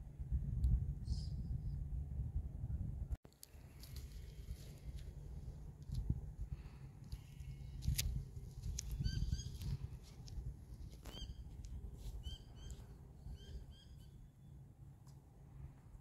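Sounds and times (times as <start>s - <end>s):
wind rumble on microphone: 0.0s - 13.8s
birds chirping: 12.2s - 14.6s.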